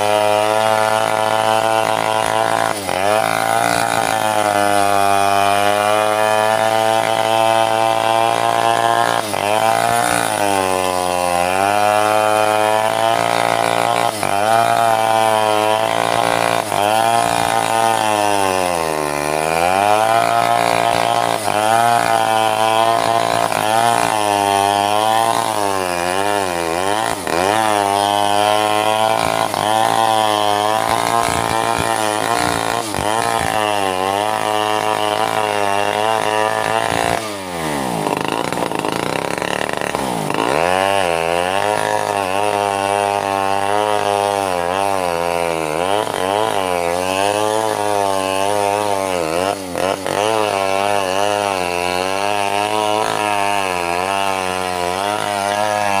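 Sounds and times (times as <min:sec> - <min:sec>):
chainsaw cutting into log: 0:00.0 - 0:56.0.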